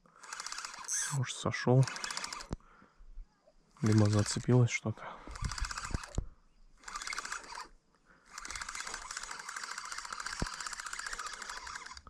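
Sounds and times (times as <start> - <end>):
fishing reel clicking: 0.2 - 2.6, 3.8 - 4.7, 5.3 - 6.2, 6.8 - 7.7, 8.3 - 12.0.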